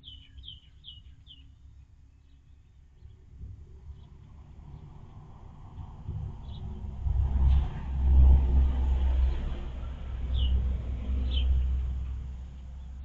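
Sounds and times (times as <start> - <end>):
bird chirps: 0.0 - 3.2, 10.3 - 10.6, 11.2 - 11.8
low rumble: 3.0 - 13.0.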